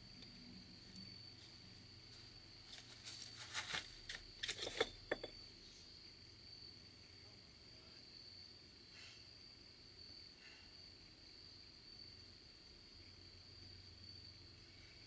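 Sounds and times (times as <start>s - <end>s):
crickets chirping: 0.0s - 15.0s
rustles and thumps: 2.6s - 5.4s.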